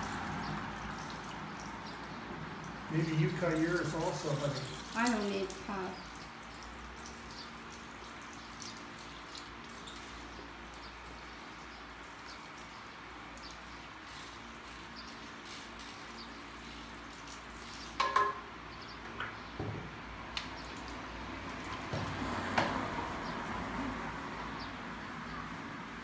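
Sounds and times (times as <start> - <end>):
shower head spraying water: 0.0 - 6.3, 8.2 - 18.2
water dripping: 0.0 - 19.0, 20.0 - 24.6.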